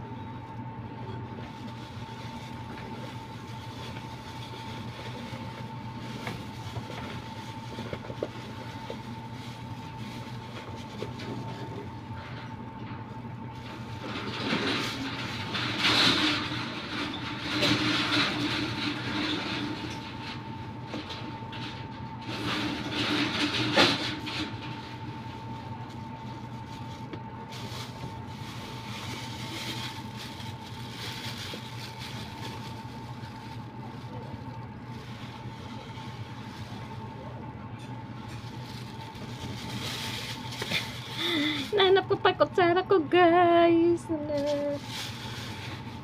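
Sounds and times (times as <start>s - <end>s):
plastic bags rustling: 1.2s - 12.2s, 22.6s - 42.4s, 44.1s - 46.0s.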